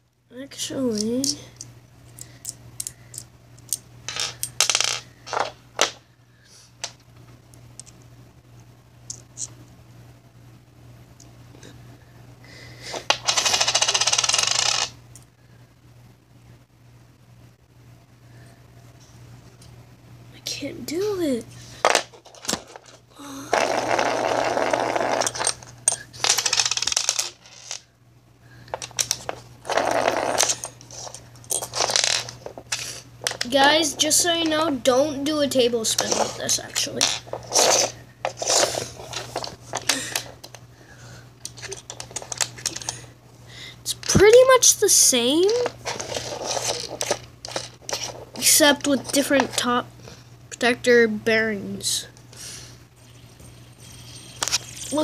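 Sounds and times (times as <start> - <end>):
fidget spinner clicking and rattling: 0.7 - 5.4, 30.4 - 40.6, 53.0 - 55.0.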